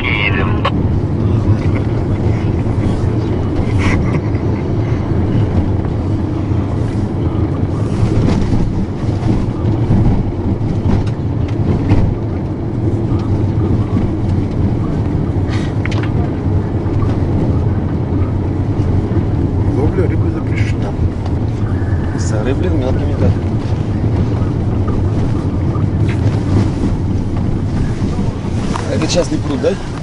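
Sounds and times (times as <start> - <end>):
car road and engine rumble: 0.0 - 30.0.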